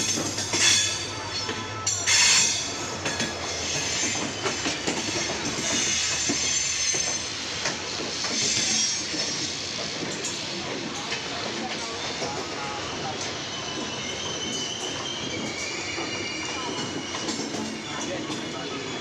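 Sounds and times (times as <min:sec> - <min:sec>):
wheels clacking over rail joints: 0:00.0 - 0:12.6
train wheels rumbling on rails: 0:00.0 - 0:19.0
faint wheel squeal: 0:00.5 - 0:10.6, 0:11.2 - 0:19.0.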